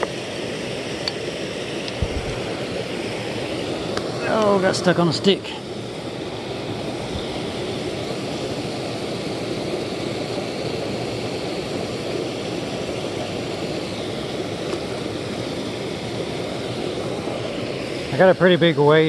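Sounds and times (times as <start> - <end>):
creek water rushing: 0.0 - 19.0.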